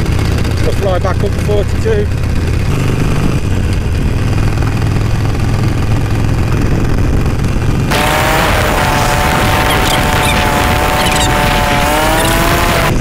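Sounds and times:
motorcycle engine rumbling: 0:00.0 - 0:13.0
wind noise on microphone: 0:02.3 - 0:13.0
thin whine: 0:07.9 - 0:13.0.

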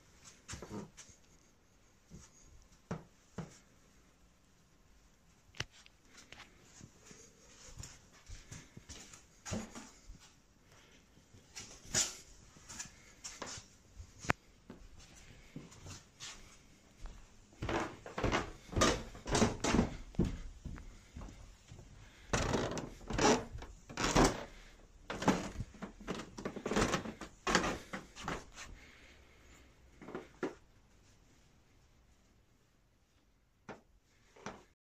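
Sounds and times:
footsteps on carpeted stairs: 0:02.1 - 0:03.7, 0:06.1 - 0:29.1.

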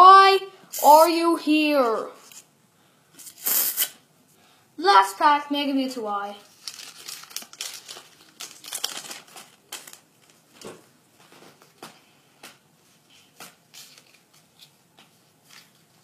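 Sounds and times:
foil wrapper crinkling: 0:06.4 - 0:10.7, 0:13.5 - 0:14.8
cards rustling: 0:06.5 - 0:16.0.

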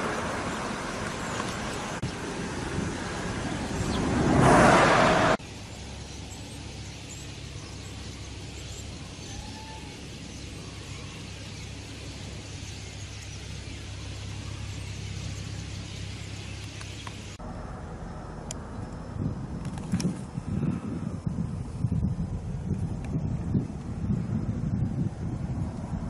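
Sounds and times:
loud rushing noise: 0:02.2 - 0:05.4
starlings chirping: 0:03.2 - 0:04.2, 0:05.4 - 0:17.4
steady low hum: 0:05.4 - 0:26.0.

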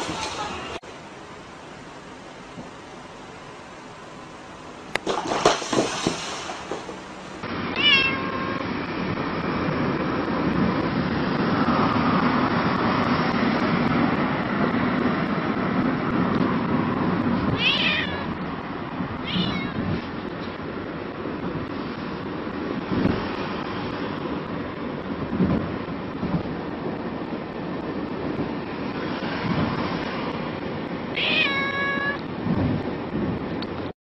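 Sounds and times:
cat meowing: 0:07.7 - 0:08.6, 0:17.5 - 0:18.4, 0:19.2 - 0:19.9, 0:31.2 - 0:32.3.

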